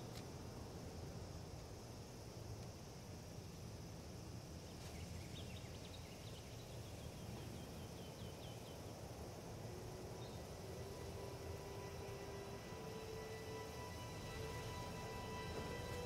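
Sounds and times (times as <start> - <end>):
low wind rumble: 5.2 - 16.0
held musical tone: 9.7 - 16.0.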